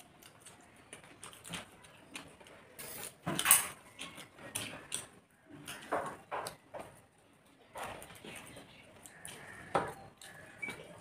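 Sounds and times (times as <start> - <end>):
chewing: 0.0 - 3.2, 7.8 - 11.0.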